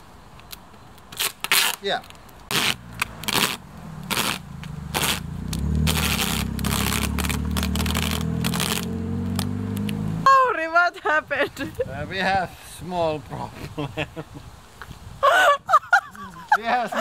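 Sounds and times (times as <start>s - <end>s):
duct tape ripping: 0.4s - 10.2s.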